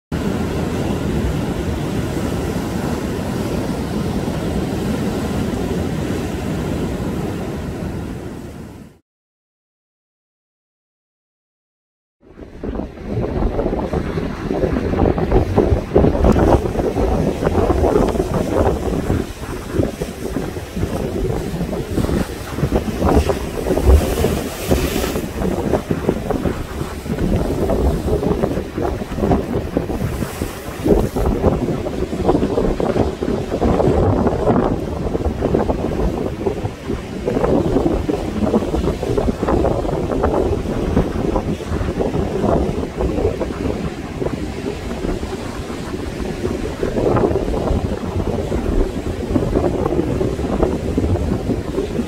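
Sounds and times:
wind buffeting microphone: 0:12.2 - 0:52.0
sea waves breaking on rocks: 0:12.7 - 0:52.0.

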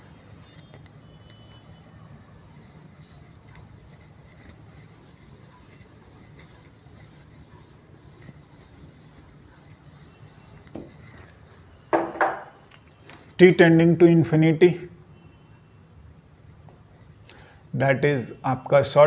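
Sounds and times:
duster rubbing whiteboard: 0:01.3 - 0:12.6.

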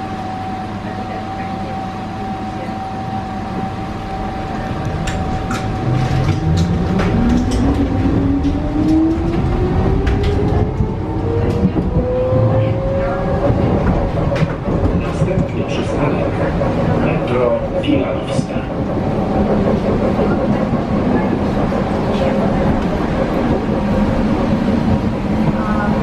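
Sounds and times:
wheels rumbling on rails: 0:00.9 - 0:26.0
tram motor whine rising: 0:01.6 - 0:26.0
clicks and knocks from track: 0:04.7 - 0:12.1.

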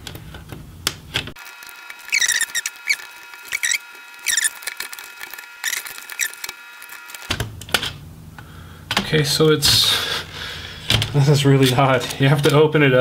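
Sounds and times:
laptop hinge squeaking: 0:02.0 - 0:04.9, 0:05.6 - 0:06.6.

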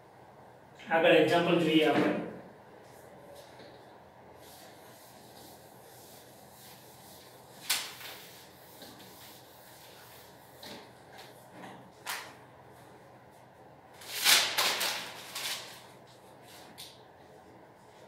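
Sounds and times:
cloth rubbing a whiteboard: 0:04.4 - 0:11.8.

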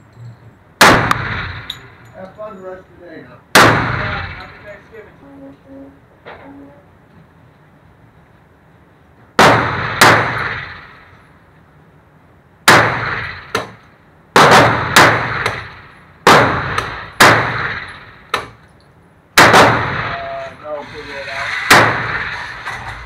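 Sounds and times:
pistol shots echoing: 0:00.8 - 0:01.8, 0:03.6 - 0:04.2, 0:09.4 - 0:10.9, 0:12.7 - 0:13.8, 0:14.4 - 0:18.6, 0:19.4 - 0:20.3.

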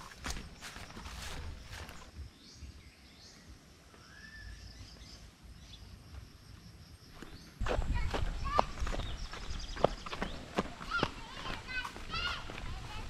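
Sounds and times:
footsteps through undergrowth: 0:00.0 - 0:02.2, 0:07.2 - 0:13.0
insects: 0:00.0 - 0:13.0
faint bird chirps: 0:00.4 - 0:06.3.

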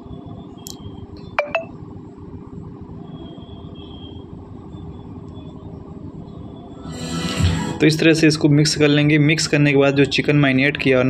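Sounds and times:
low steady background noise: 0:07.8 - 0:11.0.

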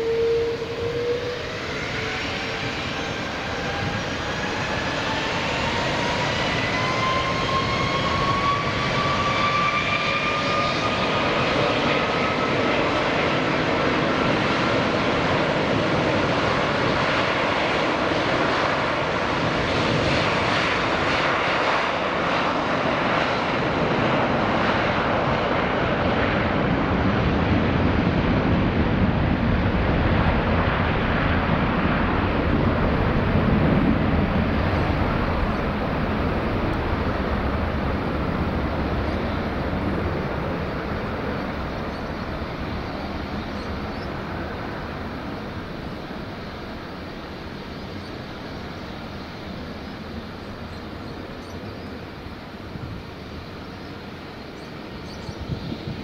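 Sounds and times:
jet engines spooling up: 0:00.0 - 0:26.8.

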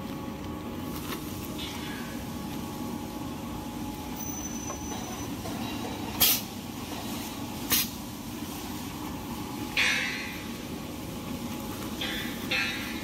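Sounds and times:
machinery humming: 0:00.0 - 0:13.0
sealing bar sharp bursts: 0:06.2 - 0:06.5, 0:07.7 - 0:08.0.

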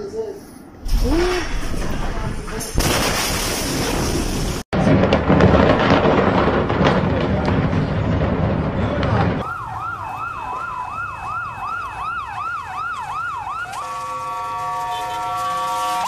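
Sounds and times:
loud rumbling noise: 0:00.7 - 0:09.8
emergency siren wailing: 0:09.4 - 0:16.0
horn blaring: 0:13.6 - 0:16.0.

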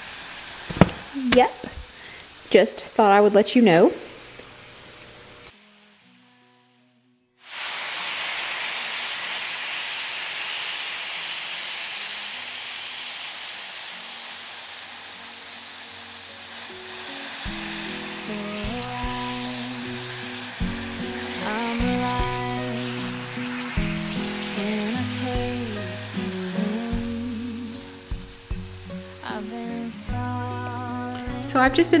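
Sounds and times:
meat sizzling in oil: 0:00.0 - 0:03.4, 0:07.4 - 0:31.3
background music: 0:15.7 - 0:32.0.

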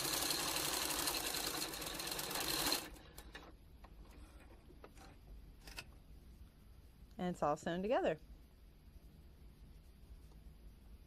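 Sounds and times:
sewing machine stitching: 0:00.0 - 0:03.5.

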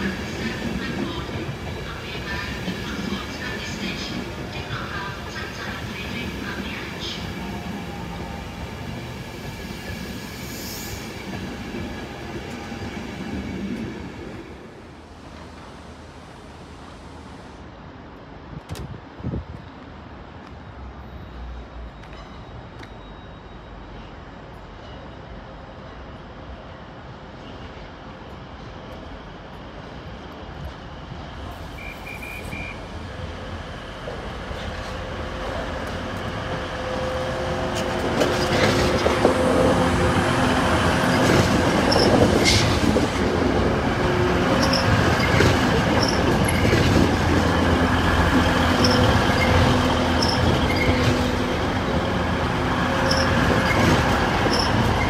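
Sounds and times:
train passing: 0:00.0 - 0:55.0
train drive tones: 0:34.0 - 0:55.0.

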